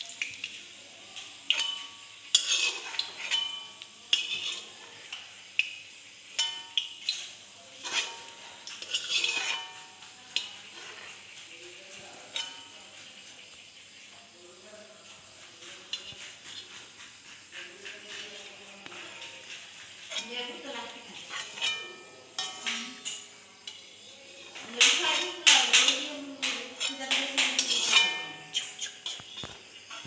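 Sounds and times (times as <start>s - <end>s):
oil sizzling faintly: 0.0s - 30.0s
ladle clanking against wok: 1.3s - 13.8s, 15.3s - 30.0s.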